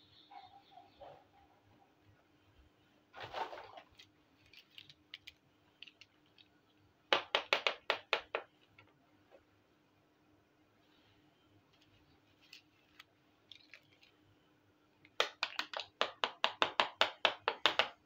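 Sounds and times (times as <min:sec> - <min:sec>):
plastic toy pieces rustling: 0:03.9 - 0:06.6, 0:12.4 - 0:14.2.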